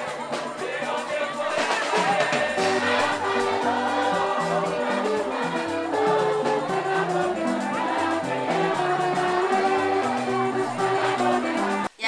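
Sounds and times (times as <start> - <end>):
choir singing: 0.0 - 11.9
musical accompaniment with steady beat: 0.0 - 12.0.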